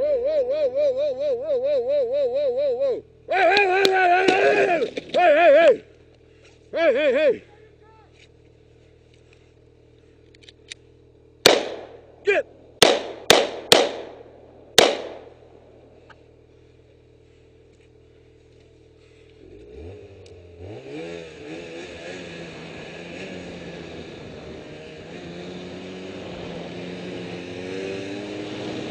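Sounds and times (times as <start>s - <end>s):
motor-like hum rising in pitch: 0.0s - 4.8s, 6.9s - 28.9s
pistol shots: 11.4s - 12.0s, 12.8s - 15.4s.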